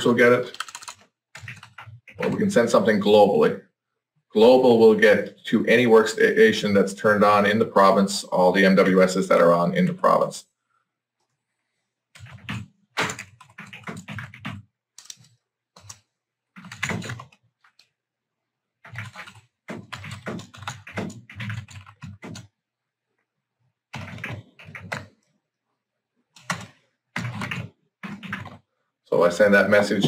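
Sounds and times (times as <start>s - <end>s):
typing on computer keyboard: 0.4s - 2.6s, 12.2s - 17.9s, 18.8s - 22.5s, 23.9s - 25.3s, 26.4s - 28.7s.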